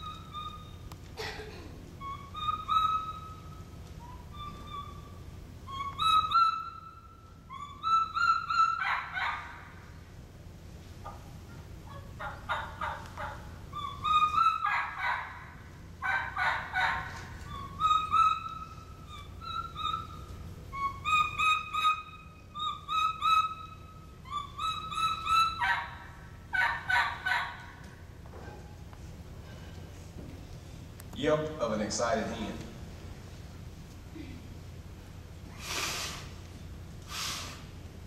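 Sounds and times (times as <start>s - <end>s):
turkey call whistles and yelps: 0.0s - 1.0s, 2.0s - 9.9s, 11.8s - 27.8s.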